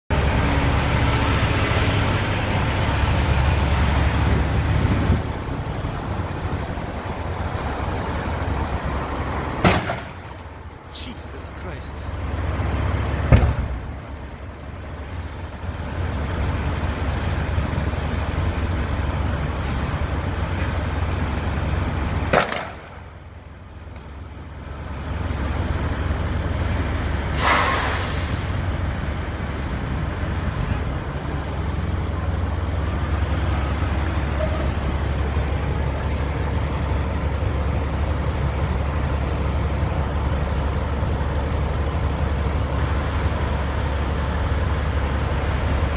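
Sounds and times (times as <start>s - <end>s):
fire rumbling: 0.1s - 10.9s, 12.1s - 26.8s
sharp bangs and cracks: 9.6s - 10.2s, 22.3s - 23.0s.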